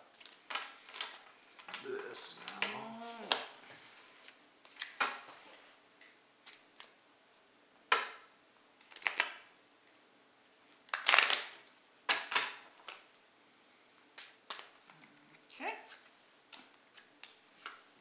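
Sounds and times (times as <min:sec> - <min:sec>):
playing cards shuffling: 0:00.1 - 0:05.6, 0:08.8 - 0:09.4.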